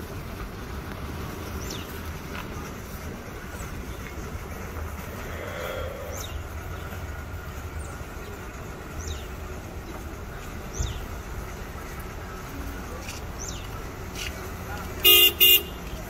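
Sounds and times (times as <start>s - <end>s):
steady low rumble: 0.1s - 9.0s
bird high downward call: 5.2s - 6.5s.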